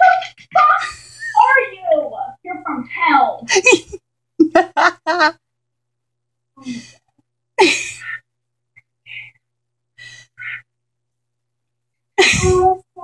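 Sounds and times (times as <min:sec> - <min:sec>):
woman gasping and crying: 0:12.2 - 0:12.9.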